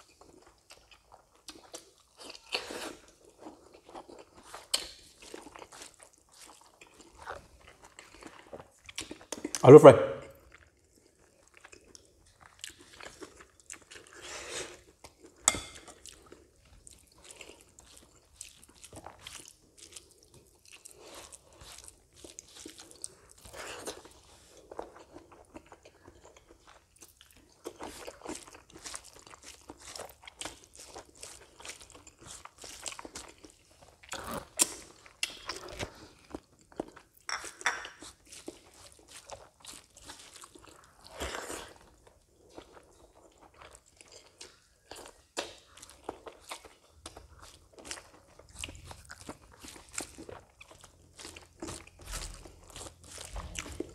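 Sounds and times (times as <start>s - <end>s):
chewing crunchy food: 0.0s - 53.9s.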